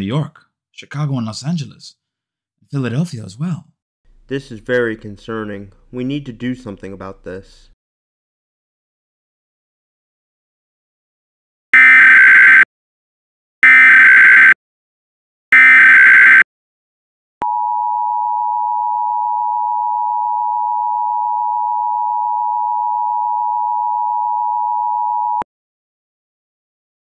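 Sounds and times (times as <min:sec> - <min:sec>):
digital header data bursts: 0:15.6 - 0:16.4.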